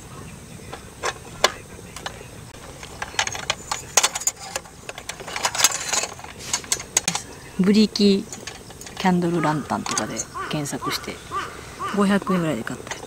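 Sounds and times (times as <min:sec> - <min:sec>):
metal and glass clinks: 0:02.6 - 0:07.3, 0:08.0 - 0:09.2.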